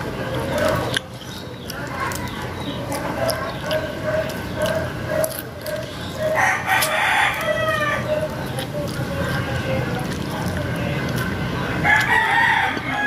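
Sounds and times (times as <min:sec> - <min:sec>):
clicking eating sounds: 0:00.0 - 0:13.0
rooster crowing: 0:06.2 - 0:08.2, 0:11.8 - 0:13.0.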